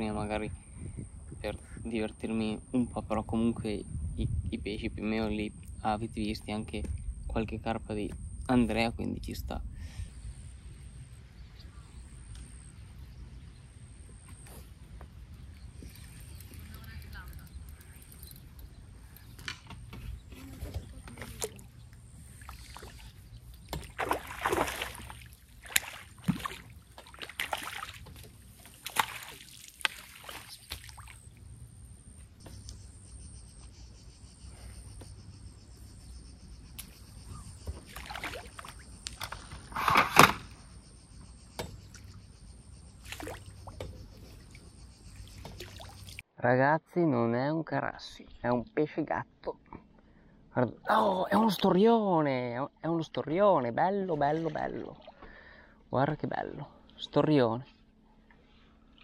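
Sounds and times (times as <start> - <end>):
water splashing: 20.5 - 31.5, 37.7 - 39.1, 43.0 - 44.6, 45.2 - 46.2, 54.0 - 55.3.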